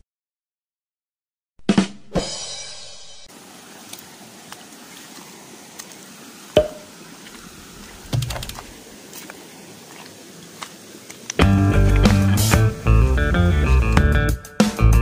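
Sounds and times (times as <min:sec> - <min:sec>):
steady hiss: 0:03.3 - 0:13.9
footsteps over loose rocks: 0:06.8 - 0:12.2.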